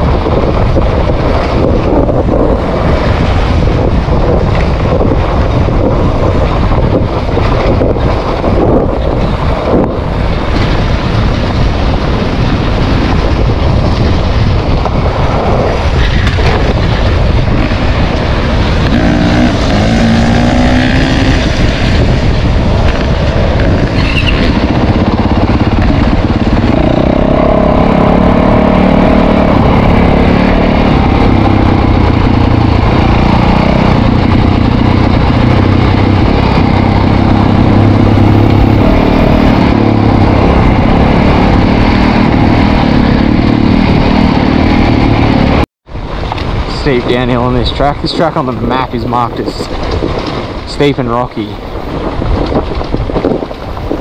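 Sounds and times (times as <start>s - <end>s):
dirt bike engine revving: 15.2s - 45.6s.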